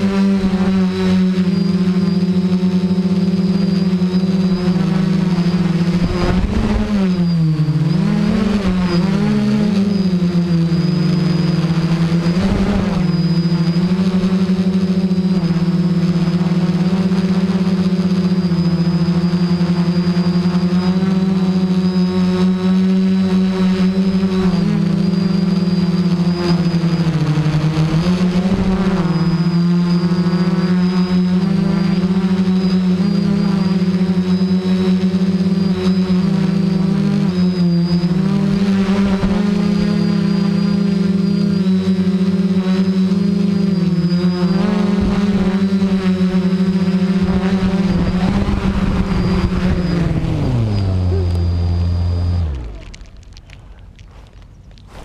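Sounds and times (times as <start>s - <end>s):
quadcopter motors buzzing: 0.0s - 55.0s
wind noise rushes: 5.6s - 7.3s.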